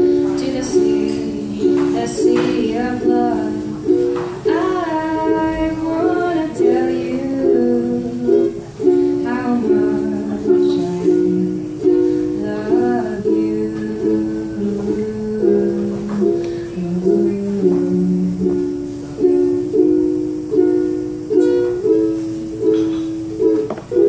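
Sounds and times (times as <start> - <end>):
woman singing: 0.0 - 18.9
ukulele chords: 0.0 - 24.0.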